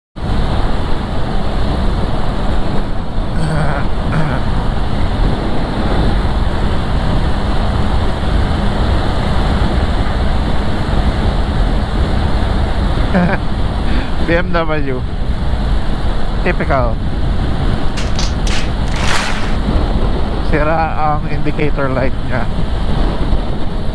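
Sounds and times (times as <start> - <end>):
wind rushing over microphone: 3.9 - 12.9, 22.1 - 23.9.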